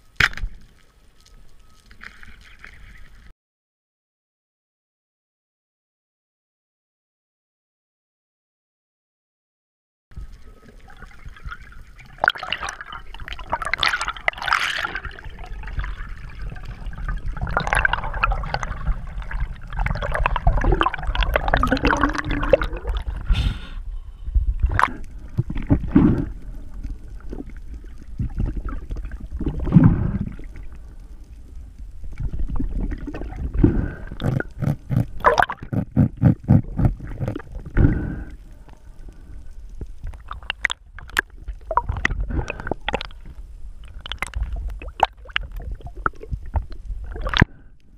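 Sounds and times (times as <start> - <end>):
water gurgling and sloshing: 0.0 - 3.3, 10.2 - 47.9
low rumble: 15.1 - 40.2.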